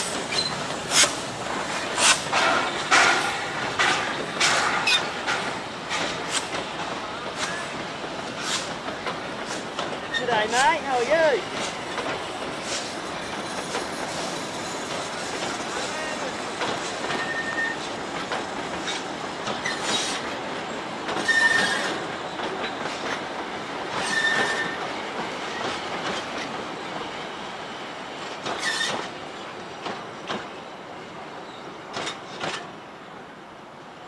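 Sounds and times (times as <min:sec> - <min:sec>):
train wheels clacking over rail joints: 0:00.0 - 0:27.4, 0:28.1 - 0:30.6, 0:31.9 - 0:32.8
high wheel squeal: 0:17.2 - 0:17.8, 0:21.2 - 0:21.9, 0:24.0 - 0:24.8.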